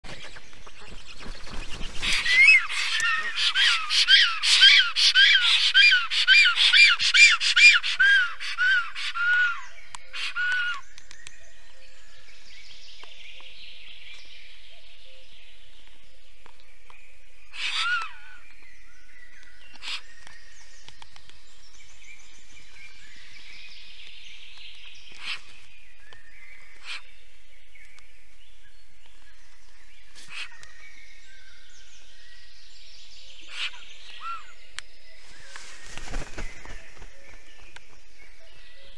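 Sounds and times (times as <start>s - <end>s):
songbirds singing: 0.0s - 38.9s
storks calling: 0.1s - 9.6s.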